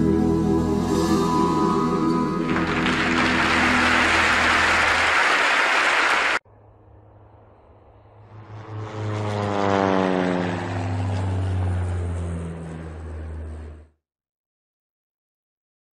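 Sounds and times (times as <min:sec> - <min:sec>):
low hum: 0:00.0 - 0:05.1, 0:06.5 - 0:13.9
engine-like drone falling in pitch: 0:00.0 - 0:14.0.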